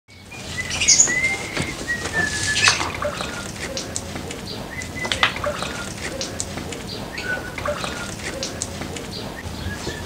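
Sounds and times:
birds chirping and whistling: 0:00.1 - 0:10.0
water splashing and dripping: 0:02.1 - 0:09.1.

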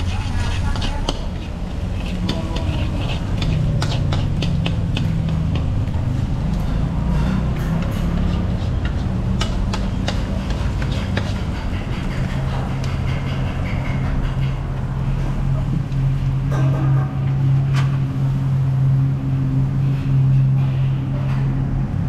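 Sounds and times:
spatula clacking against wok: 0:00.0 - 0:05.9, 0:07.7 - 0:14.6
steady low hum: 0:00.0 - 0:22.0.

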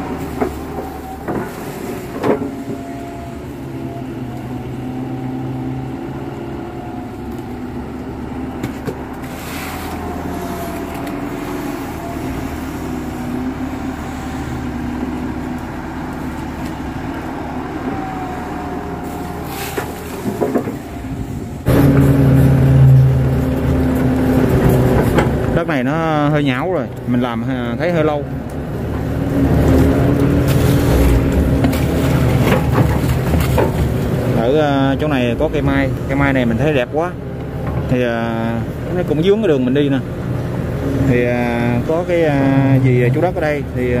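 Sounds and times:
hydraulic whine: 0:00.0 - 0:26.1
excavator diesel engine: 0:00.0 - 0:44.0.

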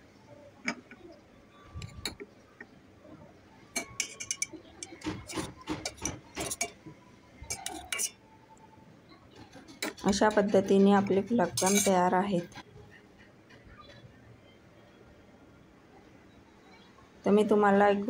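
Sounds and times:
metal spoon clinking on steel pot: 0:03.8 - 0:06.8, 0:07.5 - 0:08.2, 0:11.4 - 0:12.1.

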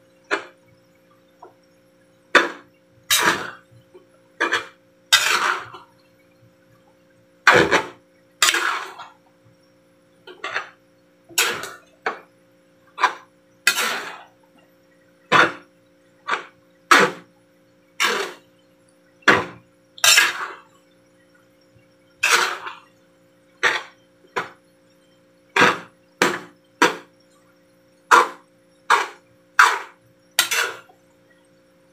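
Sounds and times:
metal utensil scraping steel bowl: 0:04.4 - 0:05.8, 0:07.5 - 0:09.1, 0:13.0 - 0:14.3, 0:18.0 - 0:18.4, 0:19.4 - 0:20.6, 0:22.2 - 0:22.8, 0:23.6 - 0:24.5, 0:28.1 - 0:30.9.

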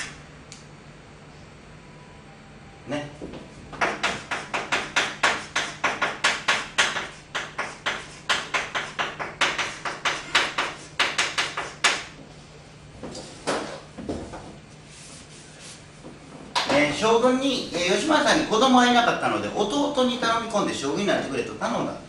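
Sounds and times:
faint low hum: 0:00.0 - 0:03.8
chalk scratching on blackboard: 0:07.0 - 0:12.0.

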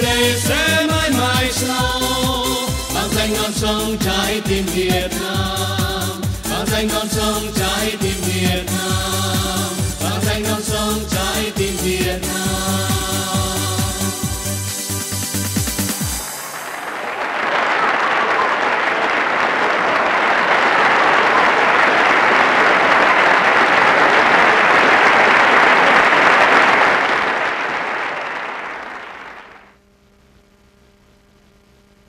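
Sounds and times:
audience applauding: 0:15.9 - 0:29.7
faint steady hum: 0:27.7 - 0:32.0.

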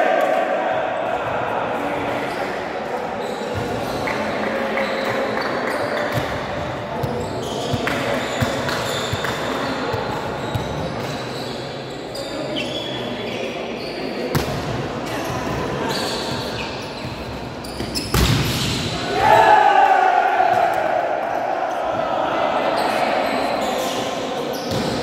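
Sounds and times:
indoor hall background: 0:00.0 - 0:25.0
volleyballs struck and bouncing: 0:17.8 - 0:19.0.

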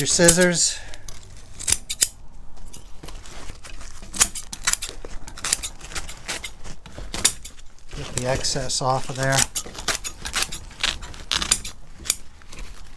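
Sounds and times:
scissors snipping burlap: 0:03.0 - 0:12.9.

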